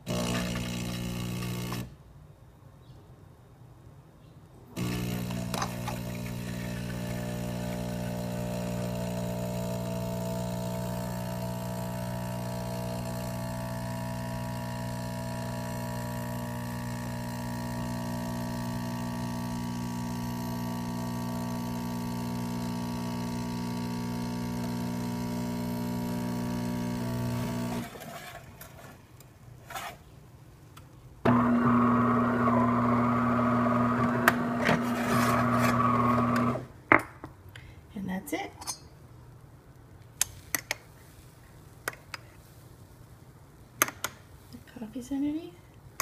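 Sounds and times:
espresso machine pump humming: 0:00.1 - 0:01.9, 0:04.8 - 0:28.0, 0:31.3 - 0:36.6.

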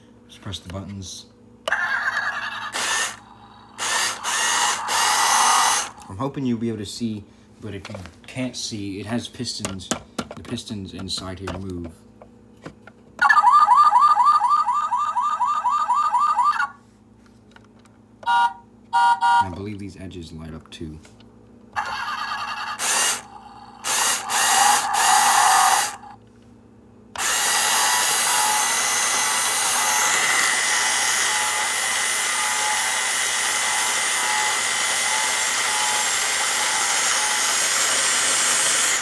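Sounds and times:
small electric motor whirring: 0:01.7 - 0:06.1, 0:21.8 - 0:26.2, 0:27.2 - 0:39.0
electronic engine sound effects: 0:13.2 - 0:16.8, 0:21.8 - 0:26.2.

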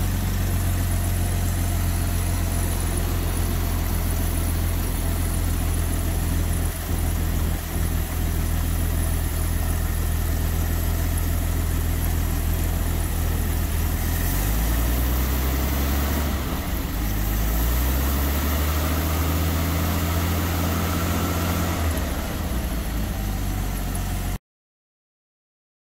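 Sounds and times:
engine idling: 0:00.0 - 0:24.4.

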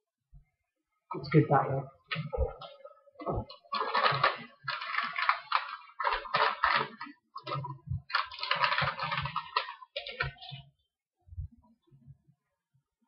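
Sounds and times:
kitchen rustling and scraping: 0:02.0 - 0:10.7.

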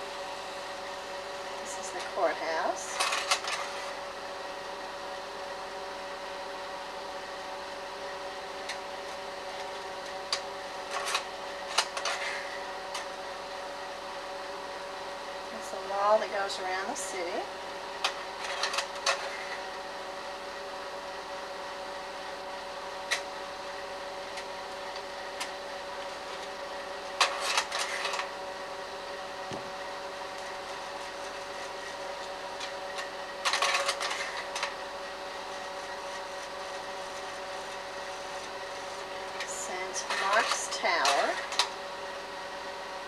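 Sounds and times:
projector motor and fan hum: 0:00.0 - 0:43.0
slide mechanism clicking and clatter: 0:18.0 - 0:19.5, 0:32.6 - 0:34.7.

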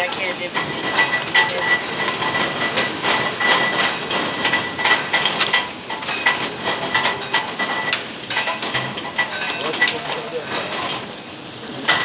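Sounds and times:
conveyor clattering: 0:00.0 - 0:12.0.

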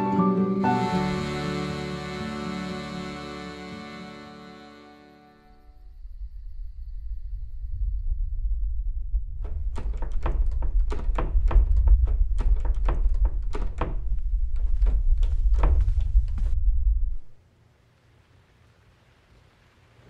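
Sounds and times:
deep rumble: 0:05.7 - 0:17.4
knocking on wooden door: 0:09.5 - 0:15.9.

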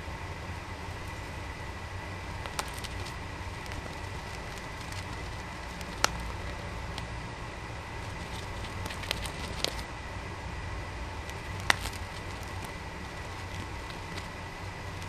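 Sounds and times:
bird nibbling leafy greens: 0:02.0 - 0:09.9, 0:11.1 - 0:15.0.

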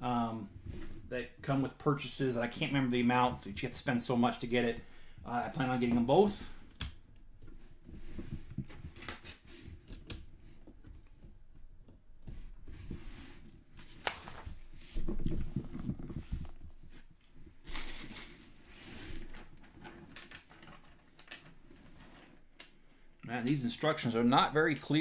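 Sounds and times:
paper booklet rustling: 0:13.8 - 0:16.6
plastic bricks clicking and clattering: 0:19.6 - 0:21.6.

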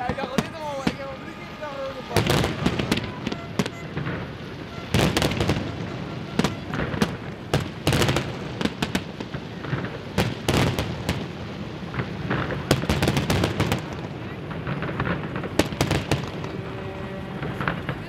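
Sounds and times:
fireworks bursting: 0:00.0 - 0:18.0.

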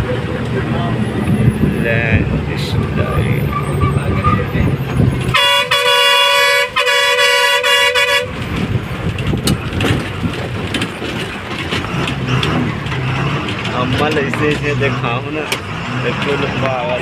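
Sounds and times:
bus running noise: 0:00.0 - 0:17.0
vehicle horn blasts: 0:05.3 - 0:08.4.

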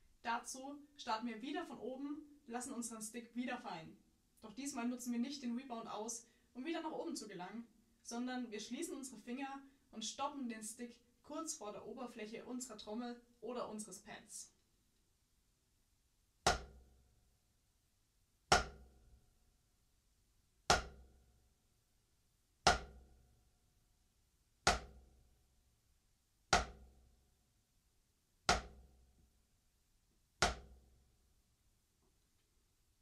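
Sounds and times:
drumsticks striking practice pad: 0:16.5 - 0:16.8, 0:18.5 - 0:18.8, 0:20.7 - 0:21.0, 0:22.7 - 0:23.0, 0:24.7 - 0:25.0, 0:26.6 - 0:26.8, 0:28.5 - 0:28.8, 0:30.4 - 0:30.7.

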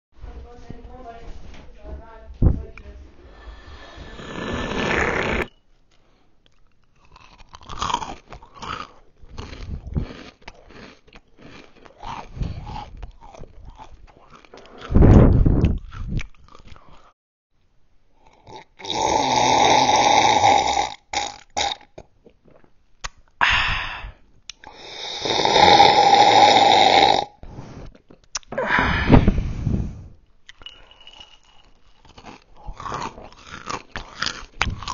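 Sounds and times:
person gulping and slurping: 0:03.4 - 0:05.5, 0:06.5 - 0:17.1, 0:18.2 - 0:34.9
person burping: 0:18.5 - 0:22.1, 0:25.1 - 0:27.4.

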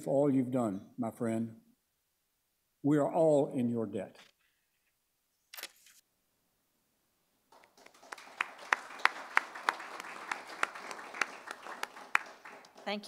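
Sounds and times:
small group applauding: 0:07.5 - 0:13.0.

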